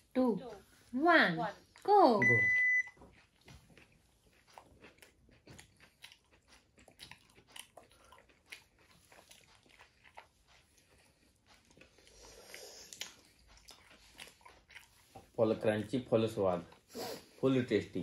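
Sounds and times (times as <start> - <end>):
chewing and biting food: 2.7 - 16.9.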